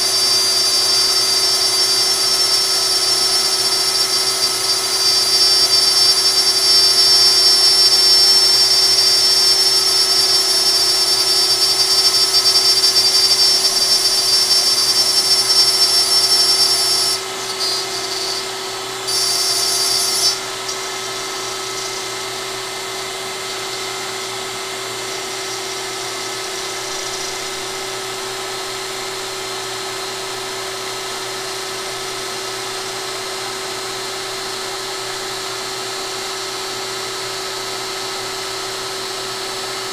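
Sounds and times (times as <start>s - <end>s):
router whining while cutting: 0.0s - 39.9s.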